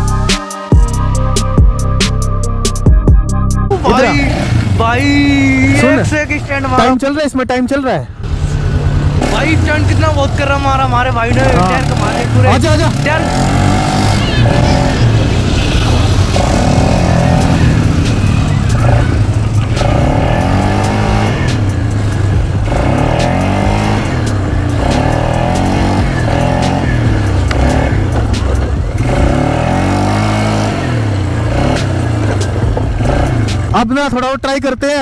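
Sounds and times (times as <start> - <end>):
quad bike engine revving: 3.8 - 7.0, 8.2 - 33.8.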